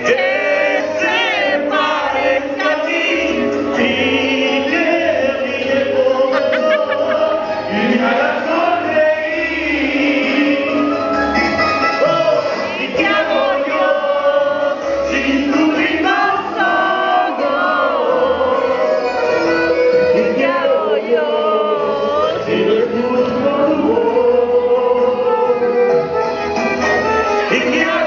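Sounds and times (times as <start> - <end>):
men singing into microphones: 0.0 - 26.2, 27.3 - 28.0
instrumental accompaniment with bass: 0.0 - 28.0.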